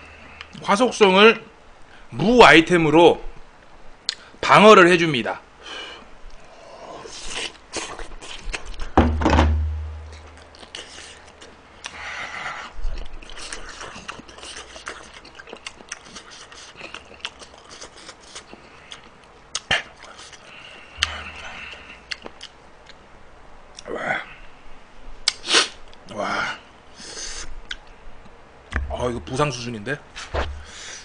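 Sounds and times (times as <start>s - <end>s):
chewing: 7.0s - 8.9s, 10.2s - 12.0s, 12.6s - 23.0s
low thud: 9.0s - 10.2s.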